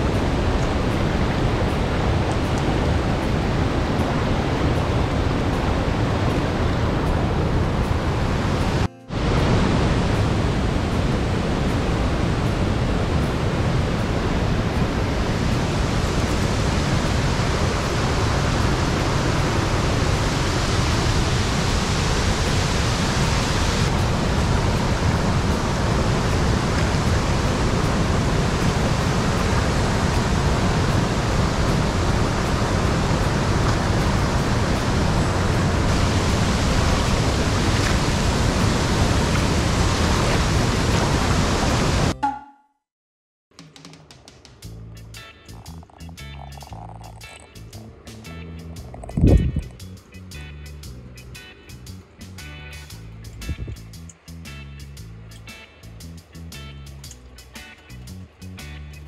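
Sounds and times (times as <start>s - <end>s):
river rippling: 0.0s - 42.1s
waterfall rushing: 0.0s - 42.2s.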